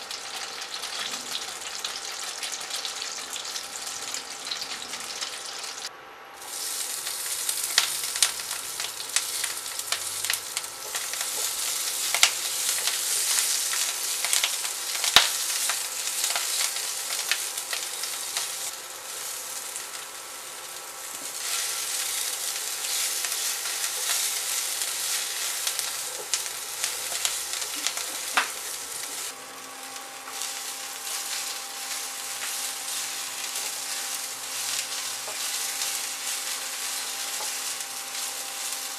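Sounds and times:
food sizzling in frying pan: 0.0 - 38.9
spatula tapping and scraping: 30.3 - 37.8.

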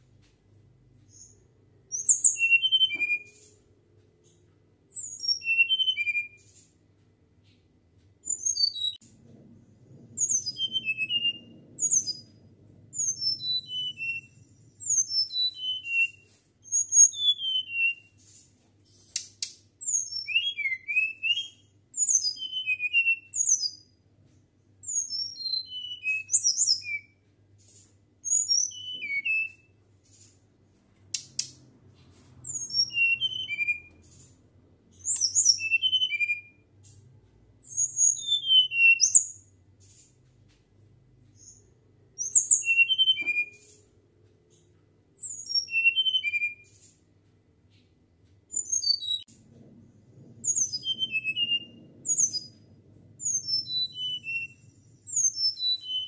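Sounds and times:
bird whistling song: 1.1 - 3.5, 4.9 - 6.6, 8.2 - 9.0, 10.2 - 18.2, 19.8 - 24.0, 24.8 - 27.2, 28.2 - 29.8, 32.4 - 34.2, 34.9 - 36.7, 37.6 - 39.5, 41.4 - 43.8, 45.2 - 46.8, 48.5 - 49.3, 50.4 - 56.0.

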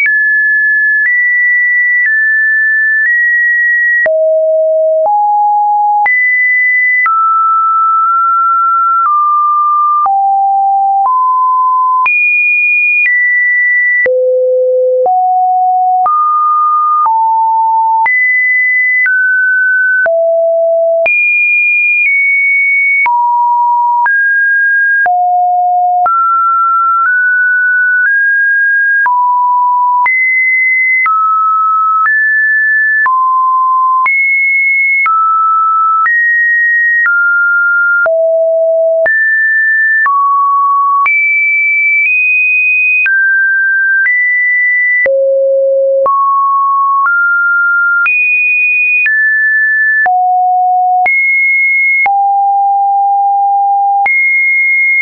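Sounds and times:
sine wave test tones: 4.0 - 12.3, 13.9 - 18.7, 19.9 - 21.3, 25.0 - 27.4, 37.1 - 39.4, 45.0 - 48.0, 50.1 - 51.2, 52.0 - 54.7.

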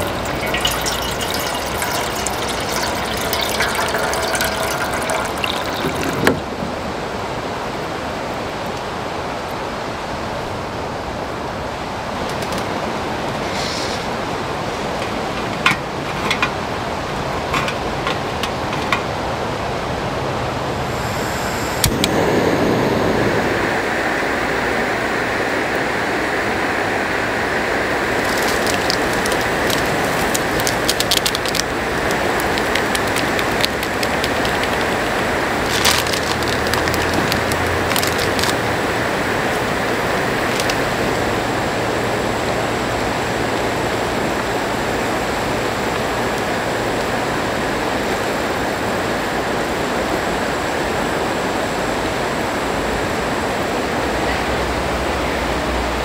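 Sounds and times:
soup packet crinkling: 0.0 - 6.4, 28.2 - 40.9
gas stove burner hissing: 20.8 - 35.8.

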